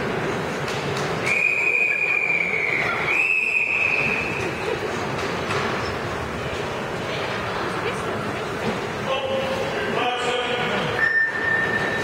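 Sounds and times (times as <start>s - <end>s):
pool hall hum: 0.0s - 12.0s
long whistle blast: 1.2s - 4.3s.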